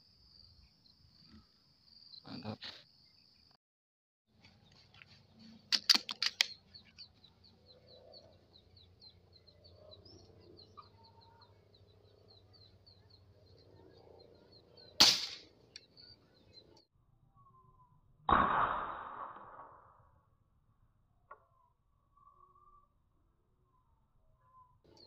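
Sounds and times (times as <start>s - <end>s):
sharp clicks: 5.7s - 7.0s
air rifle shot: 15.0s - 15.5s, 18.3s - 19.9s.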